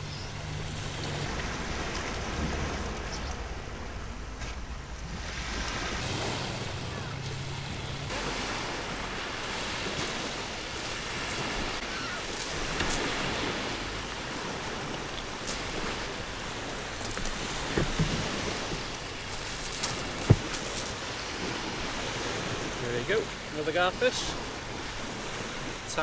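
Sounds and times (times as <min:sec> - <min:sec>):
waves breaking on shingle: 0:06.0 - 0:26.0.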